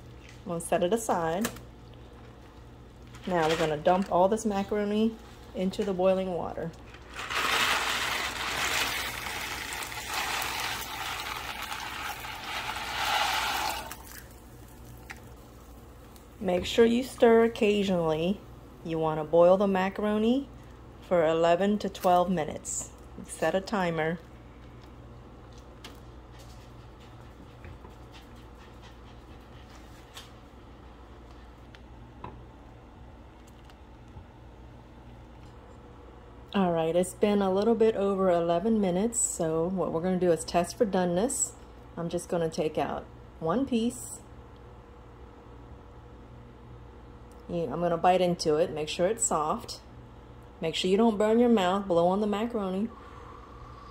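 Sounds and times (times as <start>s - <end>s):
pasta pouring into water: 7.0s - 15.7s.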